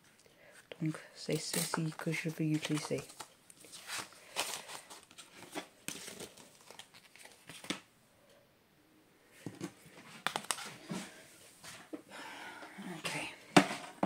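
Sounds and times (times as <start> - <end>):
paper rustling: 1.3 - 7.9, 9.5 - 11.9.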